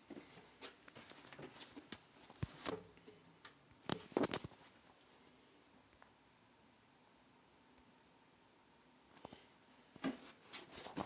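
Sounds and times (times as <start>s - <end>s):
phone handling clicks and rubs: 3.8s - 4.7s.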